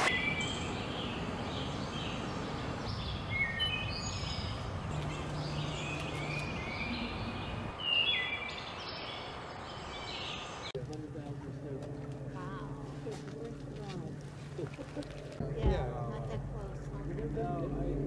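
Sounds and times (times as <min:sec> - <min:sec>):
small birds chirping: 0:00.1 - 0:10.8.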